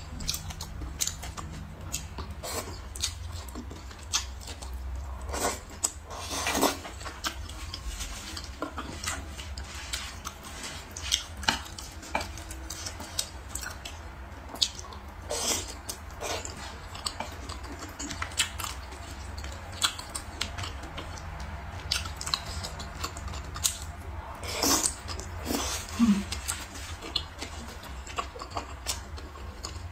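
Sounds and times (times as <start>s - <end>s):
low hum: 0.0s - 6.1s
chewing: 0.0s - 29.9s.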